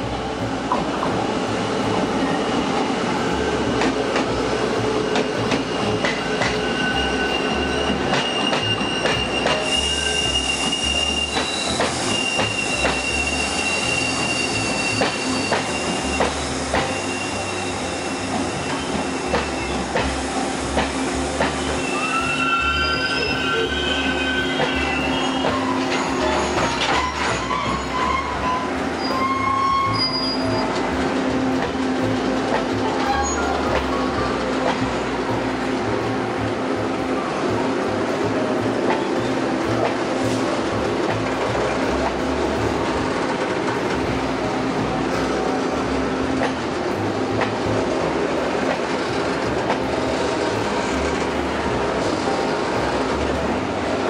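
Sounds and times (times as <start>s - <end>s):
train rolling rumble: 0.0s - 54.0s
high thin wheel squeals: 5.6s - 19.8s, 21.6s - 30.8s.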